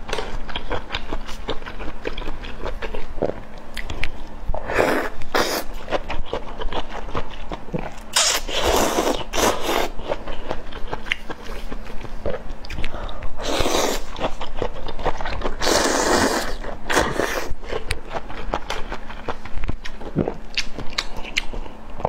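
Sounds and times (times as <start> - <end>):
wet chewing and lip-smacking: 9.4 - 13.2, 16.9 - 21.8
slurping noodles: 15.6 - 17.5.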